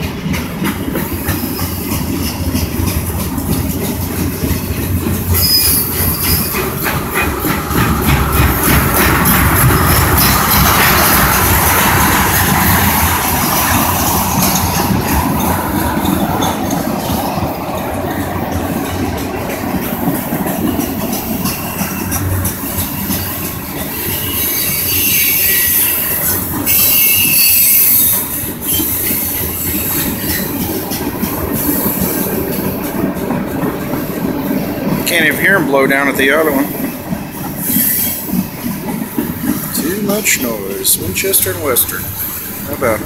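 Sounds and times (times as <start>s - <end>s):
freight train wheels rumbling on rails: 0.0s - 43.0s
train cars clattering and clanking: 0.0s - 43.0s
metallic wheel squeal: 5.2s - 6.8s, 9.0s - 12.7s, 21.2s - 30.7s, 37.6s - 38.4s.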